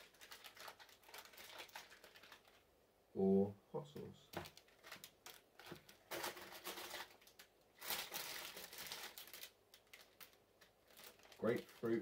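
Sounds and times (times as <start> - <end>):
foil pouches crinkling: 0.0 - 2.6, 4.4 - 12.0.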